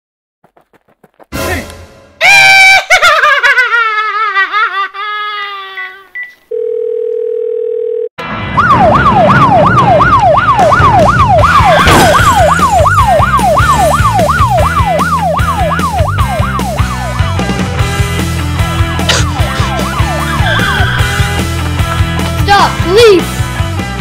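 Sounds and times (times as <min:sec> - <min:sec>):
police siren: 0:08.2 - 0:17.7, 0:19.1 - 0:21.4
background music with a beat: 0:12.3 - 0:24.0.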